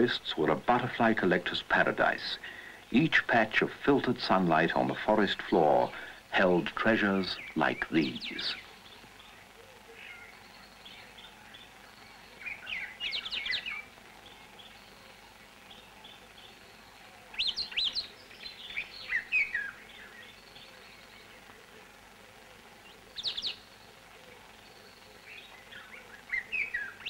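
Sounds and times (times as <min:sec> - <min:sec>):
birds whistling and trilling: 0:07.2 - 0:21.6, 0:22.9 - 0:24.0, 0:24.6 - 0:27.0
soft bird chirps: 0:07.2 - 0:21.9, 0:22.7 - 0:27.0.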